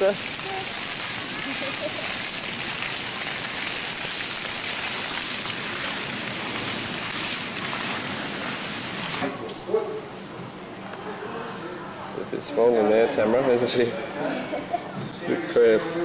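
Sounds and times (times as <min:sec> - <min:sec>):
fountain water splashing: 0:00.0 - 0:09.2.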